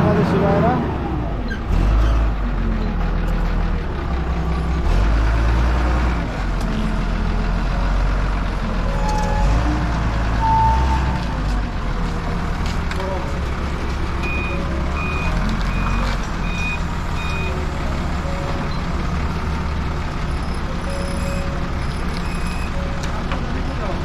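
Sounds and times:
forklift engine droning: 0:00.0 - 0:24.0
short beeps: 0:10.4 - 0:11.2, 0:14.2 - 0:17.6, 0:20.4 - 0:23.0.

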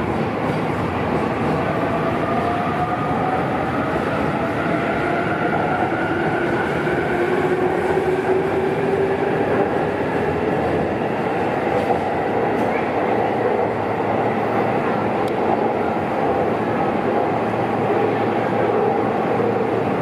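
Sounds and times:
train running noise on rails: 0:00.0 - 0:20.0.

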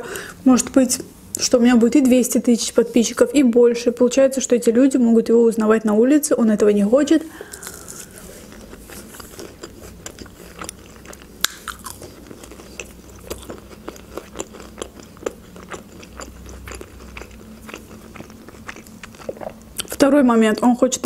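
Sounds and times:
chewing crunches: 0:07.4 - 0:20.0
wet mouth clicks: 0:11.4 - 0:11.8.

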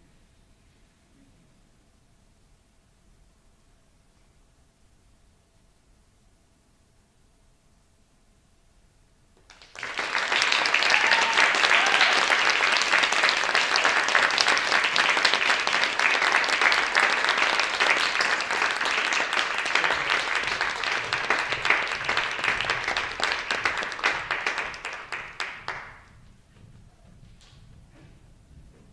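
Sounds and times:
audience applauding: 0:09.4 - 0:26.2.

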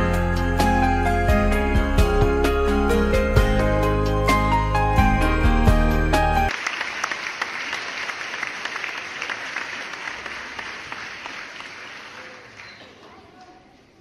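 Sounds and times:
background music: 0:00.0 - 0:06.5
applause: 0:06.5 - 0:13.7.

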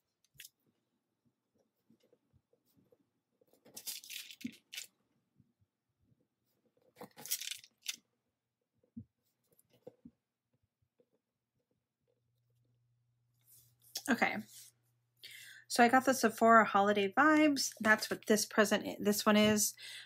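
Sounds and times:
paper and plastic rustling: 0:03.6 - 0:04.9, 0:07.0 - 0:08.0.

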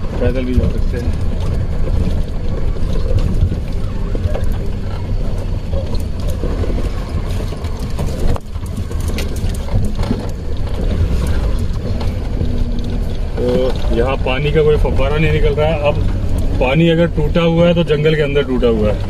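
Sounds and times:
body rattles and knocks: 0:00.0 - 0:19.0
vehicle engine and road rumble: 0:00.0 - 0:19.0.

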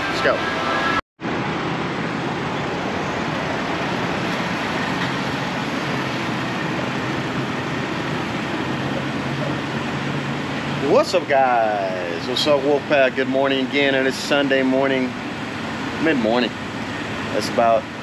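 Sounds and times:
low hum: 0:00.0 - 0:14.1.

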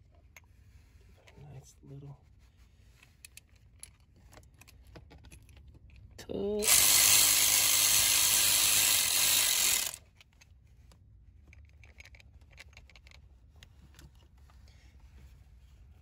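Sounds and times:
power tool motor running: 0:06.6 - 0:10.0.

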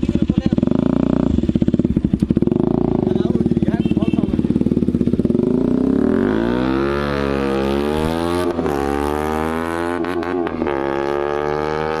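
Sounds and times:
motorcycle accelerating hard: 0:00.0 - 0:12.0.

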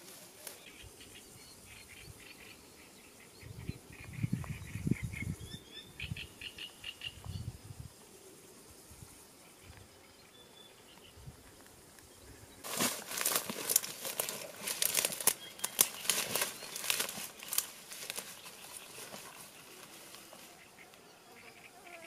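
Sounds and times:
footsteps through dry grass: 0:12.6 - 0:20.8.

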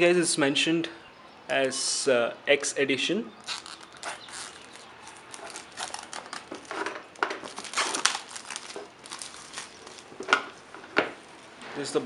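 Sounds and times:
plastic wrapping crinkling: 0:03.4 - 0:11.6.

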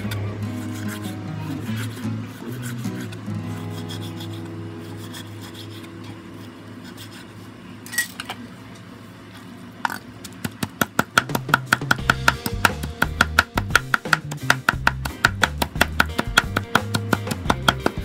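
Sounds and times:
knife scraping and clicking: 0:00.1 - 0:07.3
cleaver chopping rapidly on board: 0:10.4 - 0:18.0
knock on chopping board: 0:11.1 - 0:18.0
knife slicing fat on board: 0:11.9 - 0:18.0.

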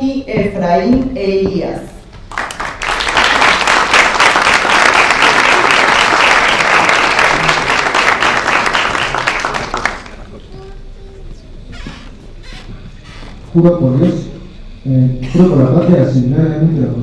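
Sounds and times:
audience applauding: 0:02.3 - 0:10.5.

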